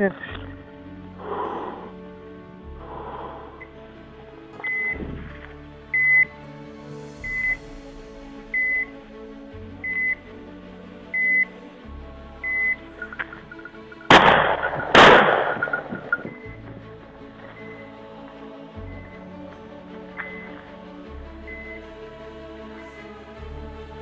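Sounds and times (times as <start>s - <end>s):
background music: 0.0s - 24.0s
short electronic beeps: 4.6s - 5.0s, 6.0s - 6.3s, 7.2s - 7.6s, 8.6s - 9.0s, 15.6s - 16.6s
shotgun shots: 14.1s - 16.1s.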